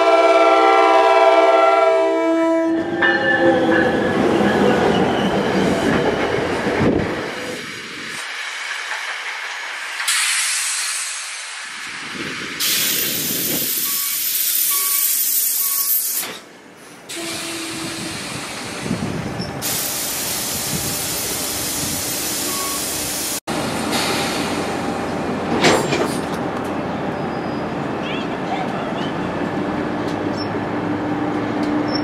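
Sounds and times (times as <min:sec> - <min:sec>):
train air hiss: 0:09.9 - 0:25.2.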